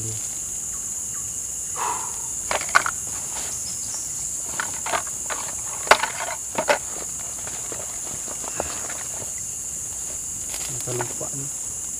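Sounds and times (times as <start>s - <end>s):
insects chirping: 0.0s - 11.9s
sharp knocks and clatters: 2.4s - 3.5s, 4.5s - 9.3s.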